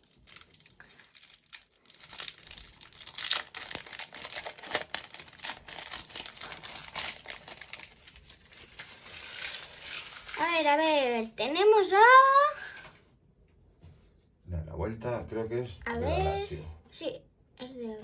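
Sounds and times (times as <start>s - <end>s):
foil wrapper crinkling: 0.0s - 11.4s.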